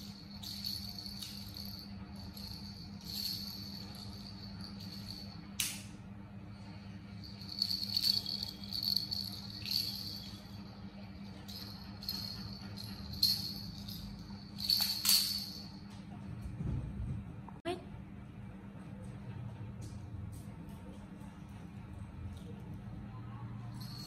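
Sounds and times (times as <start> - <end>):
baby rattle shaken: 0.0 - 5.5, 7.2 - 15.8
low hum: 0.0 - 24.0.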